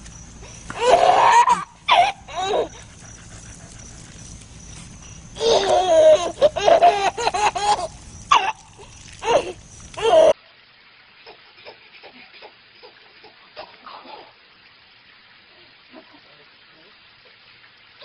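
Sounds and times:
toddler laughing: 0:00.7 - 0:03.0, 0:05.4 - 0:10.4.

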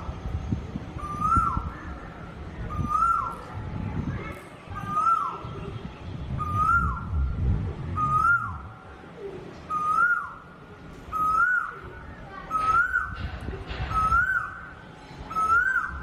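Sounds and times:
bird whistled call: 0:01.0 - 0:01.7, 0:02.7 - 0:03.4, 0:06.4 - 0:07.2, 0:08.0 - 0:08.7, 0:09.7 - 0:10.4, 0:11.1 - 0:11.8, 0:12.5 - 0:13.2, 0:13.9 - 0:14.7, 0:15.3 - 0:16.0
low rumble: 0:06.3 - 0:08.5.

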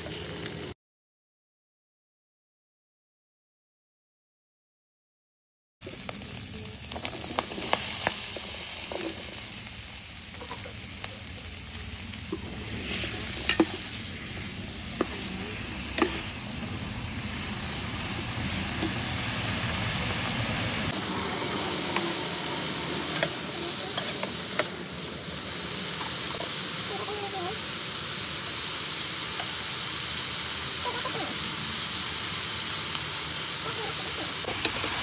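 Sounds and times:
meat sizzling in a pan: 0:00.0 - 0:00.8, 0:05.8 - 0:35.0
metal spoon scraping a pan: 0:12.4 - 0:13.9, 0:15.0 - 0:16.4, 0:23.0 - 0:24.7.

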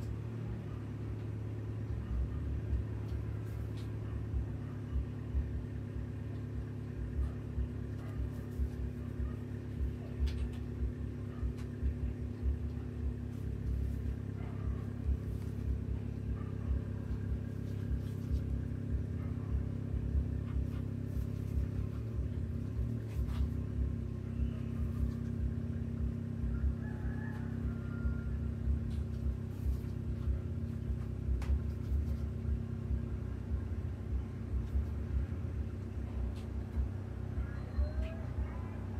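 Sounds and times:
mechanical hum and rumble: 0:00.0 - 0:38.9.

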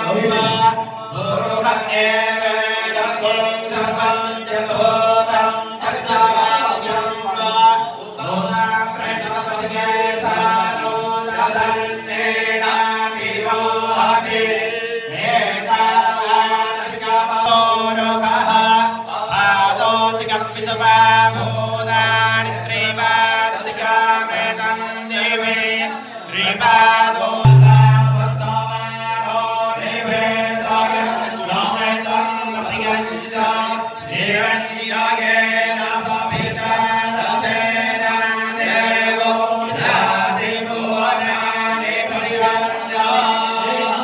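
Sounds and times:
loud low hum: 0:20.5 - 0:23.6, 0:27.5 - 0:29.6
steady held drone: 0:20.6 - 0:23.6, 0:27.5 - 0:29.4.

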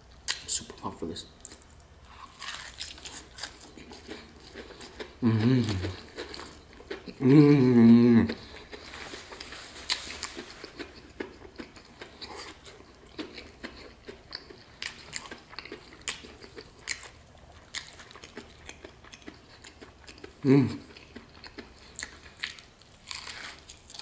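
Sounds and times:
chewing crunchy fried chicken: 0:01.4 - 0:24.0
person humming: 0:05.2 - 0:06.1, 0:07.2 - 0:08.4, 0:20.4 - 0:20.9.

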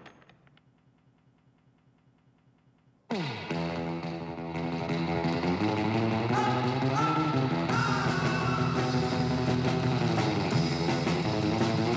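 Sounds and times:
guitar-led rock music: 0:03.1 - 0:11.9.

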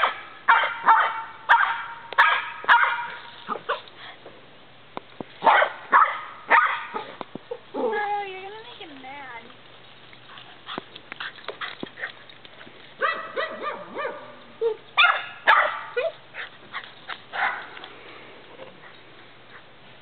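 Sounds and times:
dog barking high-pitched: 0:00.0 - 0:03.8, 0:05.4 - 0:07.2, 0:13.0 - 0:14.4, 0:15.0 - 0:16.2, 0:17.4 - 0:17.6.

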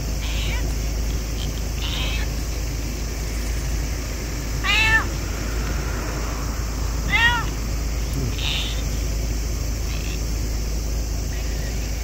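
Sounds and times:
low background rumble: 0:00.0 - 0:12.0
cat meowing: 0:00.2 - 0:00.7, 0:01.4 - 0:02.4, 0:04.6 - 0:05.1, 0:07.1 - 0:07.5, 0:08.3 - 0:08.9.

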